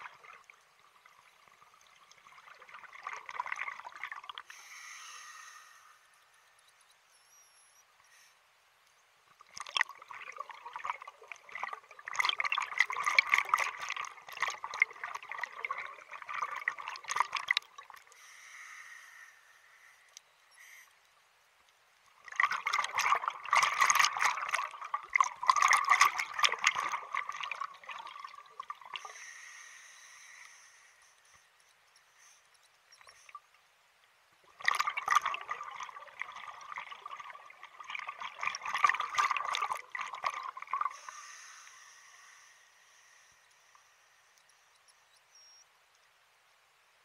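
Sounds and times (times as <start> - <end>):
regulator inhale hiss: 4.4 - 6.5, 18.1 - 21.1, 29.0 - 32.6, 40.9 - 44.6
bubbles gurgling underwater: 9.5 - 18.0, 22.2 - 29.0, 34.6 - 41.0.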